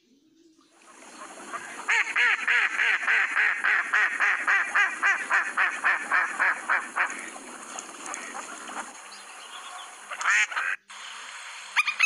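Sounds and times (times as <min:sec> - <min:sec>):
duck quacking: 0:00.9 - 0:07.3, 0:10.1 - 0:10.8.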